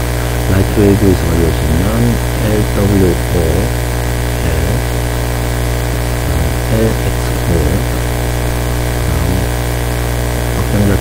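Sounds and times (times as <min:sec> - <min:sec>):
low electrical hum: 0:00.0 - 0:11.0
man speaking: 0:00.5 - 0:03.8, 0:04.4 - 0:05.0, 0:06.2 - 0:09.6, 0:10.6 - 0:11.0.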